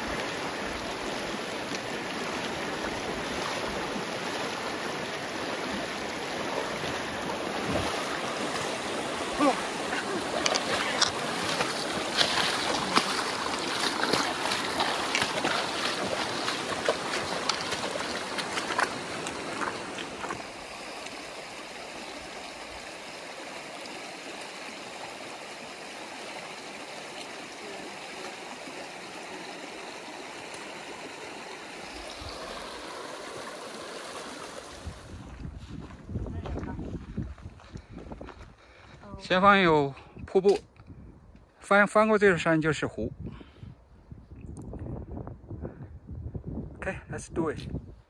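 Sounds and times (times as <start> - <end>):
feet splashing through water: 0.0 - 21.5
river water rushing: 0.0 - 35.2
creek flowing: 0.0 - 38.0.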